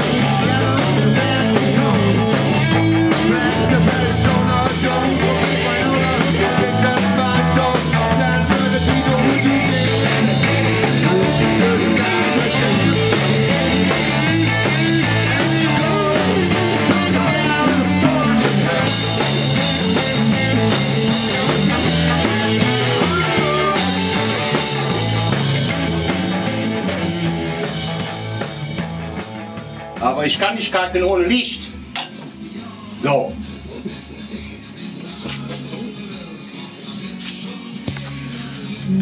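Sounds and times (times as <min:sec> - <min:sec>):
person singing: 0:00.0 - 0:20.3, 0:20.9 - 0:24.8, 0:33.6 - 0:39.0
electric guitar: 0:00.0 - 0:32.4
rock music: 0:00.0 - 0:39.0.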